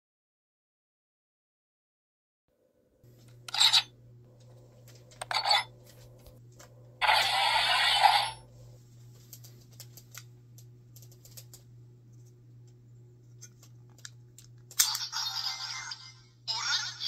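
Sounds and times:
toy electronic sound effect: 0:07.0 - 0:08.4, 0:14.8 - 0:17.0.

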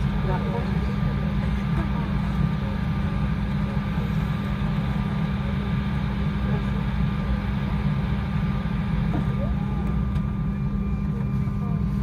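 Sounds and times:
airliner cabin rumble: 0:00.0 - 0:12.0.

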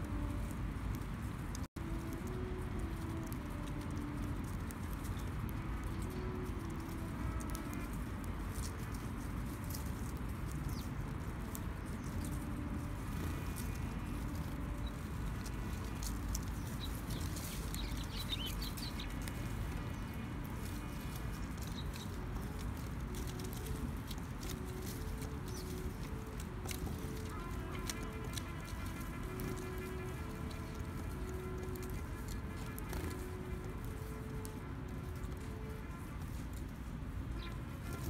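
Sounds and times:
sparrows chirping: 0:02.0 - 0:36.3, 0:37.3 - 0:38.0
beaks pecking on wood: 0:10.4 - 0:34.0.

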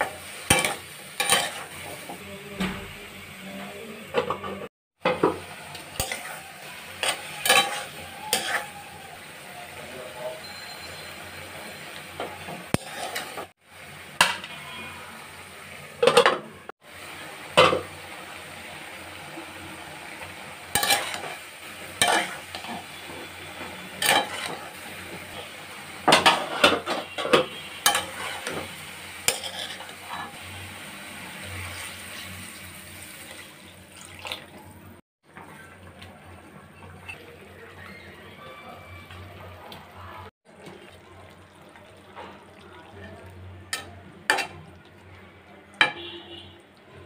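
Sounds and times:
metal spatula scraping a pan: 0:00.0 - 0:02.2, 0:05.7 - 0:08.8, 0:10.8 - 0:13.5, 0:20.7 - 0:30.7
frying sizzle: 0:00.0 - 0:47.0.

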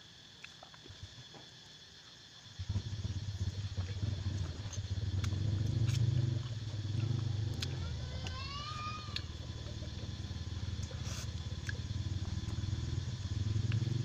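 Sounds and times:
vehicle engine rumbling: 0:02.6 - 0:14.0
wet mouth clicks of eating: 0:03.6 - 0:08.4.

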